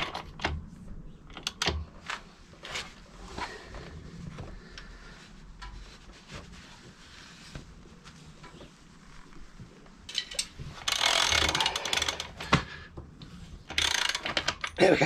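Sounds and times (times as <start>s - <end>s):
socket ratchet clicking: 10.2s - 12.3s, 13.7s - 14.8s.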